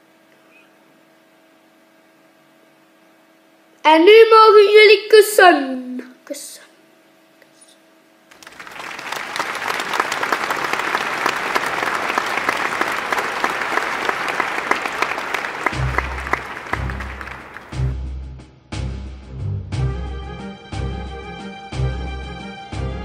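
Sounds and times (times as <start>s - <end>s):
crowd applause: 8.3s - 17.9s.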